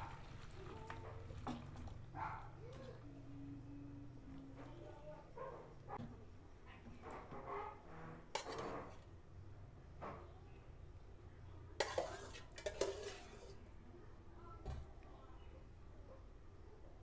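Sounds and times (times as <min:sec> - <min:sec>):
utensils clinking against dishes: 0:11.8 - 0:13.6.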